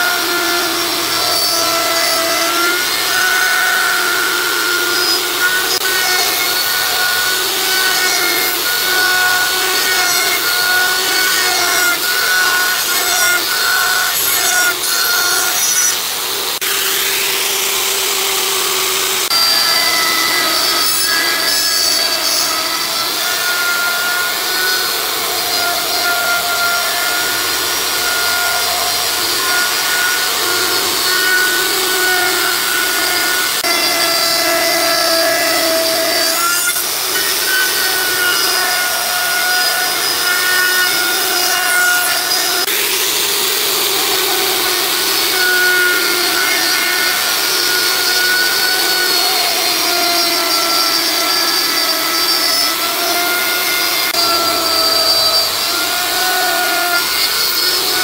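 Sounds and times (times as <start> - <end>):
power tool whining on wood: 0.0 - 58.0.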